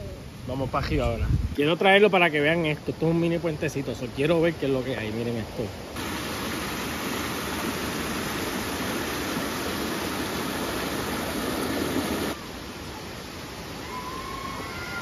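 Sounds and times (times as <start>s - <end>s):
river water rushing: 5.8s - 15.0s.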